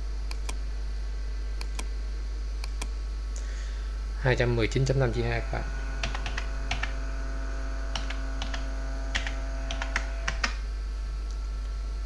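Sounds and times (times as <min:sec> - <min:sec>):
low electrical hum: 0:00.0 - 0:12.0
keyboard keystrokes: 0:06.0 - 0:07.0, 0:07.9 - 0:10.6.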